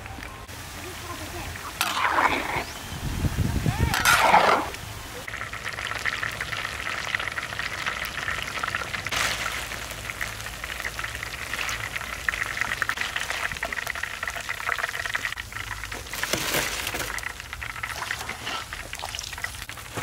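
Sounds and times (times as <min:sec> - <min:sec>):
oil sizzling in a wok: 0:05.2 - 0:20.0.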